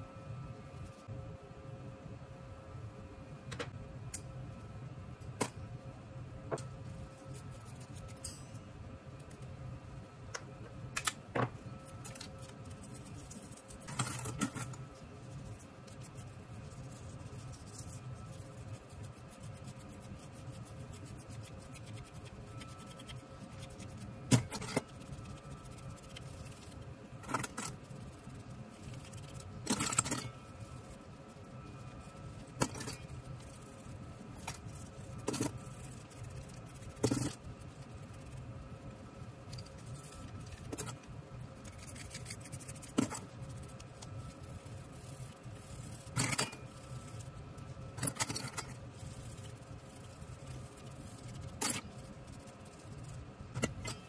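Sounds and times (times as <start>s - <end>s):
steady low hum: 0.0s - 54.0s
toothbrush scrubbing: 11.8s - 38.4s, 39.6s - 47.4s, 48.0s - 53.9s.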